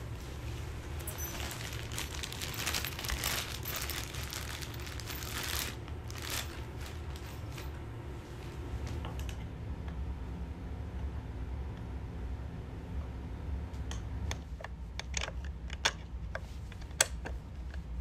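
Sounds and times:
plastic bag crinkling: 0:00.0 - 0:07.8
low steady hum: 0:00.0 - 0:18.0.

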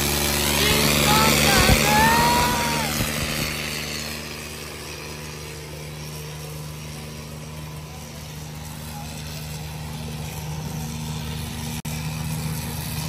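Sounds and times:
diesel tractor engine running: 0:00.0 - 0:04.1.

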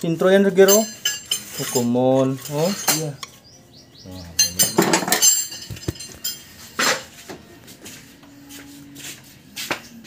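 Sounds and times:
metal tools clinking: 0:00.1 - 0:03.4, 0:04.3 - 0:07.2.

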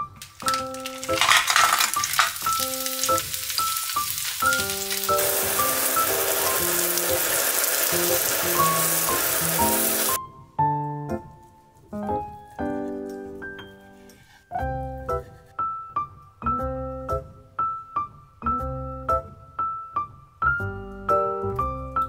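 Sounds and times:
sharp clicks of food landing: 0:00.2 - 0:07.2
chicken sizzling in hot oil: 0:00.4 - 0:10.2.

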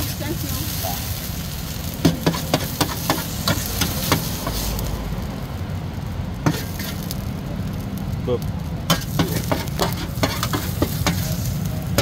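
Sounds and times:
noodles sizzling: 0:00.0 - 0:12.0
metal spatula clacking on griddle: 0:02.0 - 0:04.7, 0:06.4 - 0:07.2, 0:08.9 - 0:12.0.

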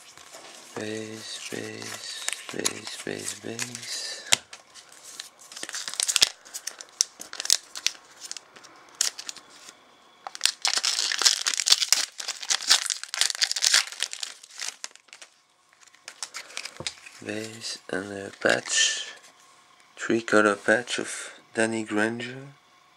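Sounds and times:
foil wrapper crinkling and tearing: 0:00.0 - 0:17.8.

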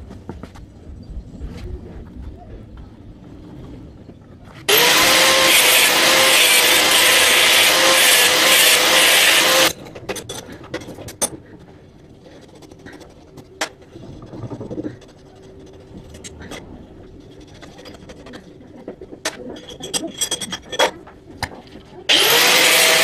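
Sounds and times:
angle grinder cutting steel: 0:04.7 - 0:09.8, 0:22.1 - 0:23.0.

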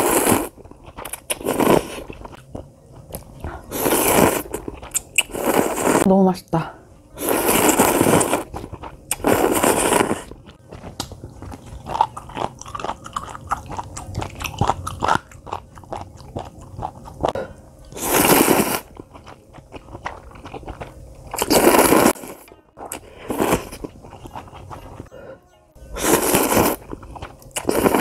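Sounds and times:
slurping noodles: 0:00.0 - 0:02.3, 0:03.7 - 0:06.1, 0:07.2 - 0:10.4, 0:17.1 - 0:25.2, 0:26.0 - 0:28.0
chewing: 0:07.3 - 0:25.4, 0:26.0 - 0:28.0.

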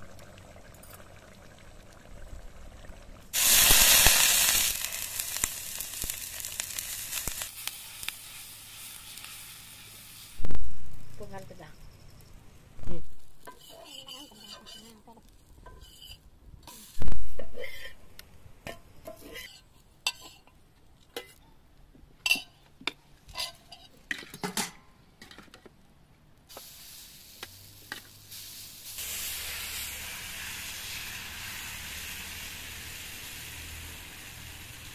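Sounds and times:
steady hiss: 0:03.3 - 0:19.1, 0:26.4 - 0:34.9
metal spoon scraping cookware: 0:13.4 - 0:16.2, 0:19.0 - 0:20.5, 0:22.2 - 0:22.6, 0:23.3 - 0:24.7.

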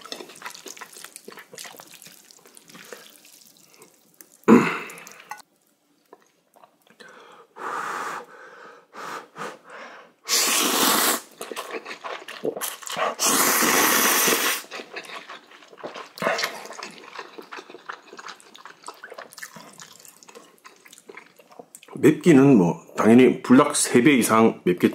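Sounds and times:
wet chewing clicks: 0:00.0 - 0:05.3, 0:11.4 - 0:13.2, 0:14.6 - 0:22.0
person slurping noodles: 0:10.3 - 0:19.0.

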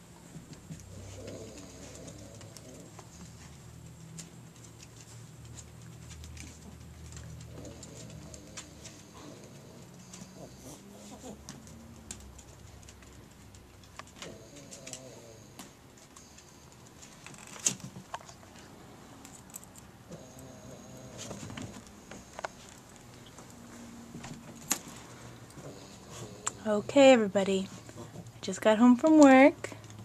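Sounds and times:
dog snoring softly: 0:00.9 - 0:03.3, 0:07.4 - 0:11.4, 0:14.2 - 0:16.7, 0:20.0 - 0:22.6, 0:25.2 - 0:28.3.

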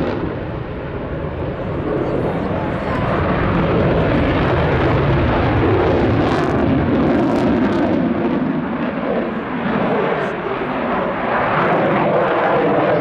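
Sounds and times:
fighter jet roaring: 0:00.0 - 0:13.0.

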